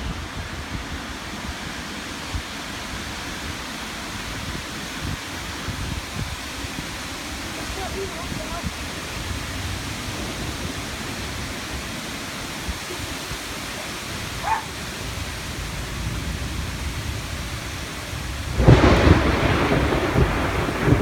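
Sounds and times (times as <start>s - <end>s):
heavy rain pouring: 0.0s - 21.0s
thunder crack and rumble: 8.6s - 12.8s, 15.4s - 21.0s.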